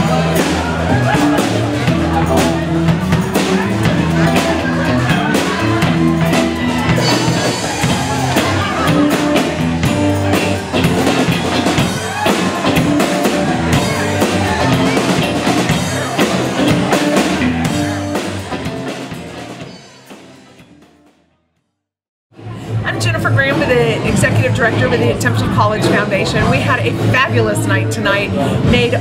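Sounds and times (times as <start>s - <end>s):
electric guitars: 0.0s - 20.3s
drum kit with cymbals: 0.0s - 21.1s, 22.4s - 29.0s.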